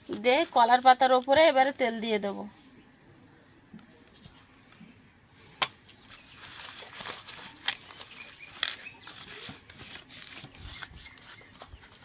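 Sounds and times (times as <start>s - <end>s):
banana leaf rustling: 6.0s - 12.0s.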